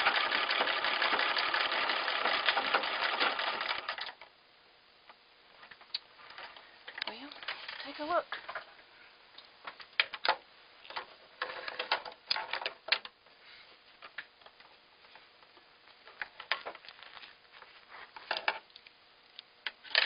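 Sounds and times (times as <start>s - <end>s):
sewing machine clicks and clatters: 0.0s - 4.2s.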